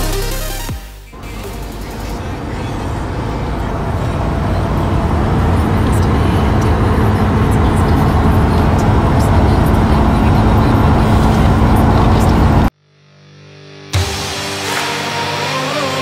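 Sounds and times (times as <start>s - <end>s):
car engine and road noise: 1.1s - 12.7s.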